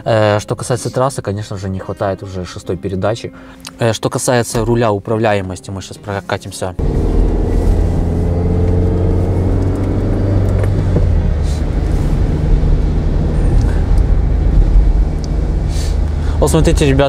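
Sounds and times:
car engine pulling in gear: 0:06.8 - 0:17.0
low road rumble: 0:06.8 - 0:17.0.

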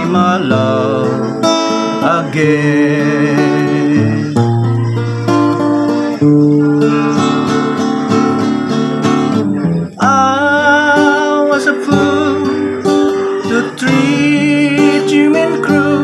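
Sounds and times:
man singing a slow ballad: 0:00.0 - 0:04.5, 0:09.9 - 0:16.0
strummed acoustic guitar: 0:00.0 - 0:16.0.

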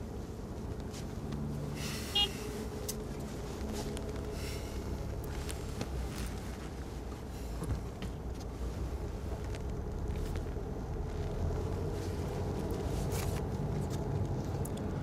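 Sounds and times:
car cabin road rumble: 0:00.0 - 0:15.0
car horn toot: 0:02.0 - 0:02.5.

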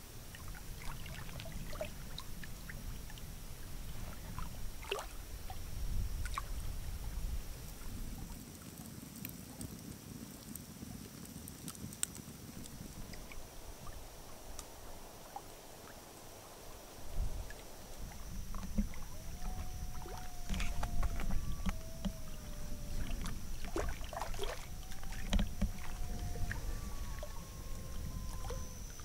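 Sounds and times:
faint high-pitched whine: 0:00.0 - 0:29.0
faint crackles and clicks: 0:00.2 - 0:29.0
low rumble: 0:12.6 - 0:29.0.

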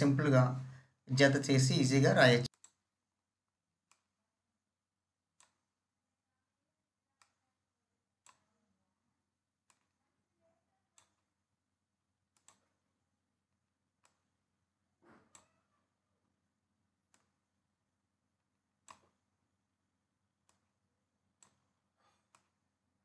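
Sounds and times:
computer mouse clicks: 0:02.5 - 0:02.9, 0:03.8 - 0:04.2, 0:05.3 - 0:05.8, 0:07.2 - 0:07.5, 0:08.2 - 0:08.7, 0:09.6 - 0:10.0, 0:10.9 - 0:11.4, 0:12.3 - 0:13.0, 0:14.0 - 0:14.4, 0:15.0 - 0:15.7, 0:17.0 - 0:17.5, 0:18.8 - 0:19.4, 0:20.4 - 0:22.7.

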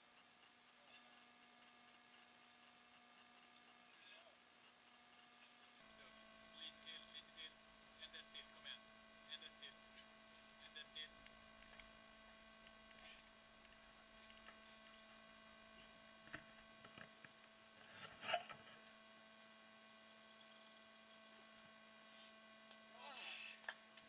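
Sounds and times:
steady electronic hum: 0:00.0 - 0:24.0
faint clicks: 0:12.6 - 0:15.0.

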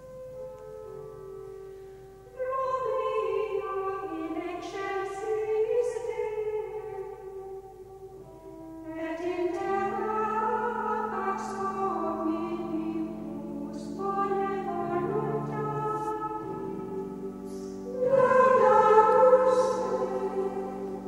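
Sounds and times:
choral singing with held notes: 0:02.4 - 0:07.4, 0:08.8 - 0:21.0.

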